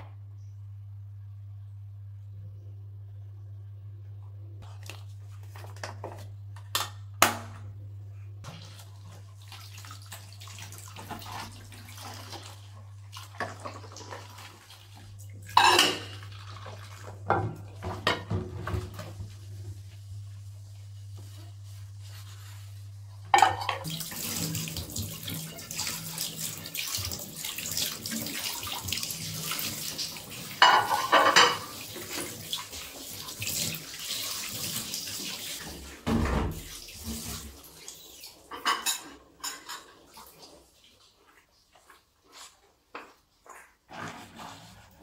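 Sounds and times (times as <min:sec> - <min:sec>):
low steady hum: 0:00.0 - 0:28.4
plates clattering: 0:15.5 - 0:16.2, 0:23.3 - 0:23.9, 0:30.6 - 0:31.7, 0:38.5 - 0:40.0
dishes clinking: 0:15.5 - 0:16.3, 0:23.3 - 0:23.9, 0:30.6 - 0:31.8, 0:38.5 - 0:40.0.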